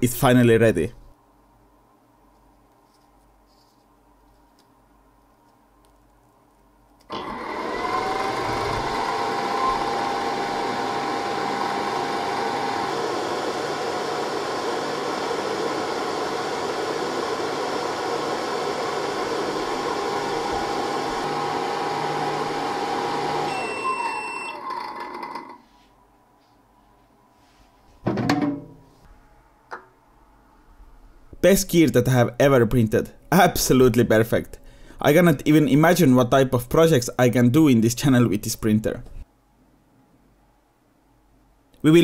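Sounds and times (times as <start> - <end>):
fans and motor whirring: 6.8 - 27.1.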